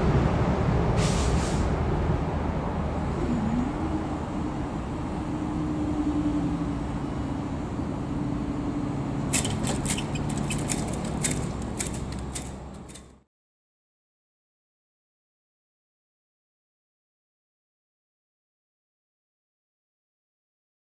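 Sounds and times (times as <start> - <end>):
crossing barrier motor whine: 3.0 - 13.2
sharp clicks: 9.3 - 13.2.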